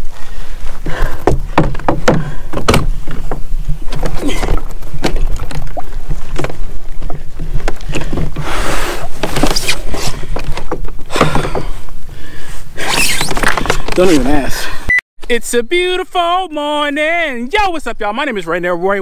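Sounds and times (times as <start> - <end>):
water splashing at hull: 1.2 - 11.7.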